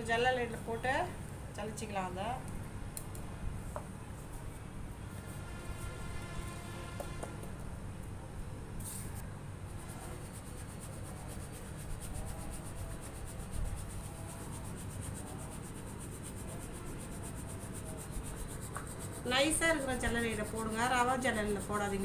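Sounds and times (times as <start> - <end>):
flour sifting through sieve onto metal: 8.8 - 22.0.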